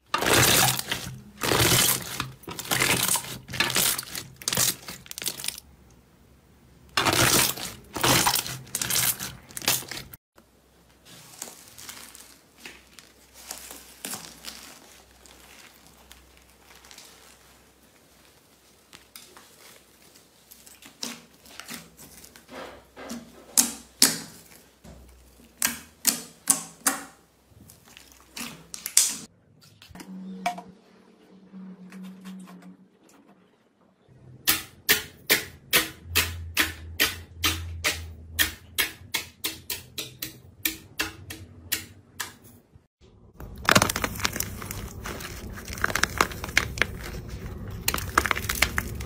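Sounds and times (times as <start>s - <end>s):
slime crackling and crinkling: 0.0s - 5.7s, 6.9s - 22.5s, 27.5s - 29.3s, 43.3s - 49.0s.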